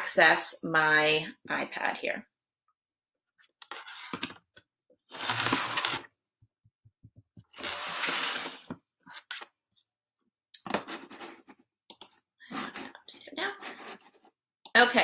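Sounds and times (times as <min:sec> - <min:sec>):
rustling scrapes of plastic stand: 0:05.1 - 0:06.1, 0:07.6 - 0:08.8.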